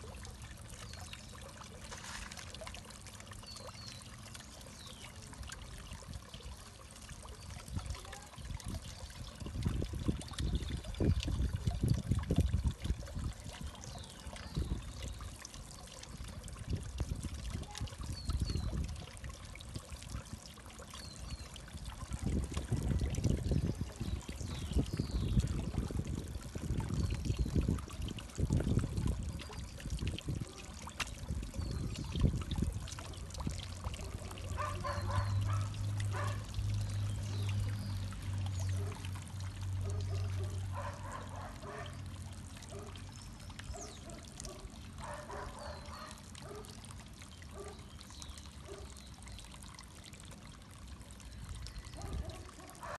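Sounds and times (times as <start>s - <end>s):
fountain water pouring into pond: 0.0s - 53.0s
small birds chirping: 3.4s - 5.3s, 13.4s - 16.4s, 17.6s - 19.4s, 23.4s - 28.0s, 28.8s - 39.2s, 42.7s - 46.6s.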